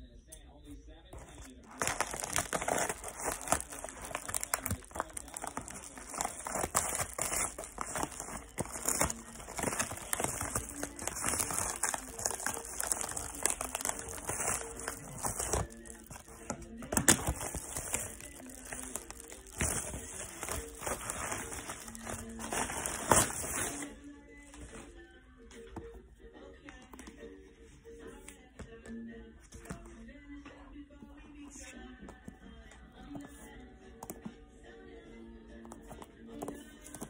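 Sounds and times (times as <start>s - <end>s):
faint music: 0.0s - 37.0s
plastic packaging crinkling: 1.1s - 23.9s.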